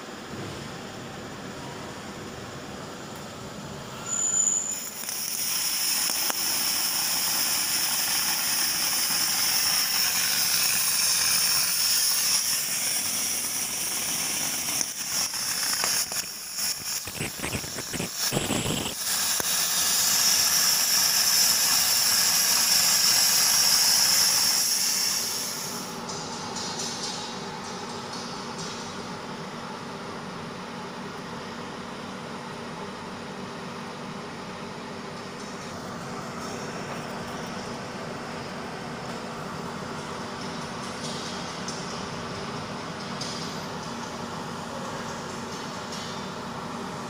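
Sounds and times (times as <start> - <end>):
cutting torch hissing: 4.0 - 25.9.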